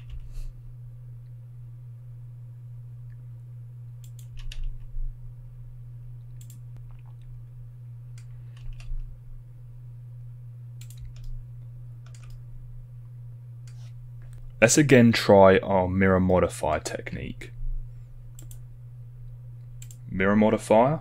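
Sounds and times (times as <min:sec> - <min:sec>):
steady low hum: 0:00.0 - 0:21.0
keyboard and mouse clicks: 0:04.0 - 0:04.8, 0:06.4 - 0:07.3, 0:10.8 - 0:11.4, 0:12.0 - 0:12.4, 0:18.3 - 0:18.6, 0:19.8 - 0:20.0.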